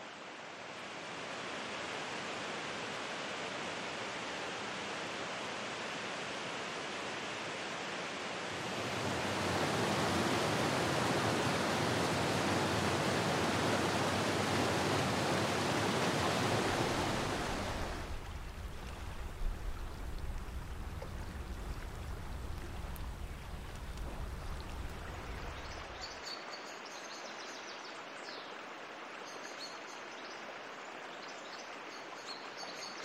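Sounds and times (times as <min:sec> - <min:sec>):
waterfall rushing and splashing: 0:00.2 - 0:26.1.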